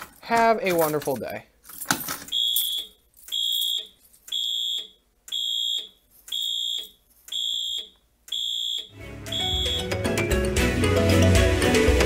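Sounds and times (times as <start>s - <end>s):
fire alarm horn pulsing: 2.3s - 10.0s.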